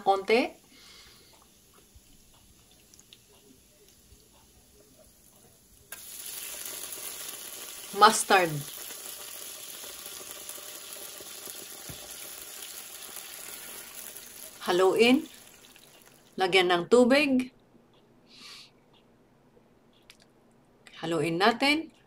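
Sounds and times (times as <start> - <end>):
garlic sizzling in oil: 0.0 - 16.4.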